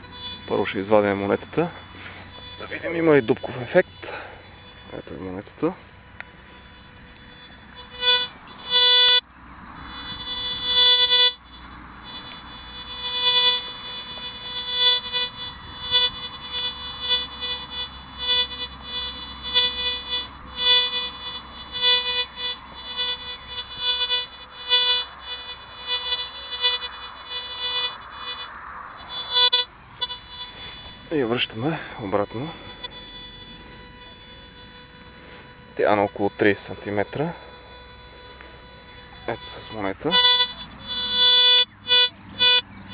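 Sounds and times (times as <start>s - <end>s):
metal detector beeps: 0.0s - 42.9s.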